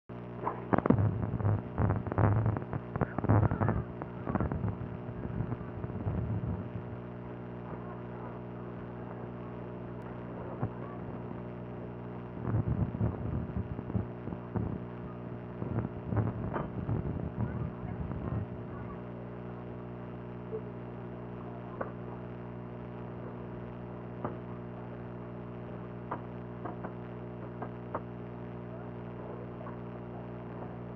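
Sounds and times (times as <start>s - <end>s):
low mechanical hum: 0.1s - 30.9s
muffled knocks and rumbles: 16.2s - 18.2s.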